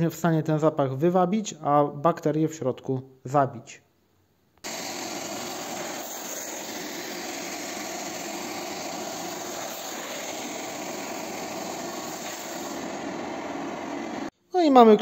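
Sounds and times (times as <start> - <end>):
vacuum suction running: 4.6 - 14.3.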